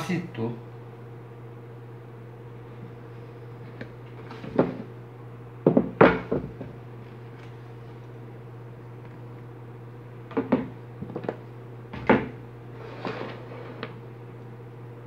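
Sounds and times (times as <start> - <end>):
steady low hum: 0.0 - 15.0
tools knocking on workbench: 5.6 - 6.7, 10.3 - 10.7.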